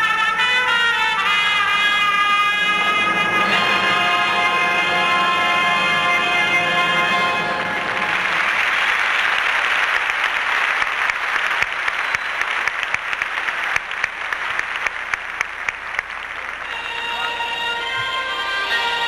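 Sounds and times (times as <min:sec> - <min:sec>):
music: 0:00.0 - 0:07.9, 0:16.6 - 0:19.0
audience applauding: 0:02.9 - 0:19.0.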